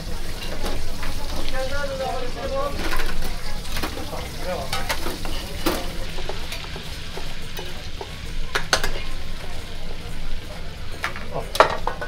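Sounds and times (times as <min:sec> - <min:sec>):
kebab skewers sizzling on grill: 0:00.0 - 0:12.0
metal skewers and pans clinking: 0:00.3 - 0:09.1.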